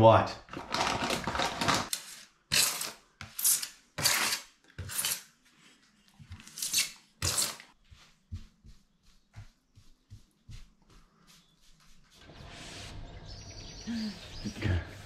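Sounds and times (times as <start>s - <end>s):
tool scraping: 1.9s - 5.3s, 6.4s - 7.8s.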